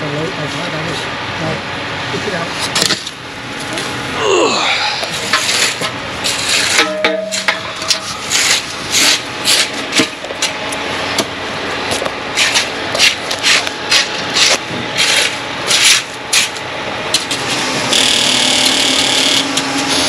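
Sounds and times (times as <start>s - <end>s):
rushing noise with low hum: 0.0s - 20.0s
rake scraping wet concrete: 5.1s - 10.6s, 12.0s - 17.7s.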